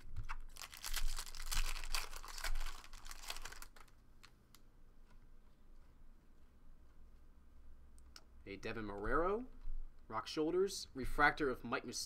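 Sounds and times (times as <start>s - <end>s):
foil wrapper tearing and crinkling: 0.0s - 4.3s.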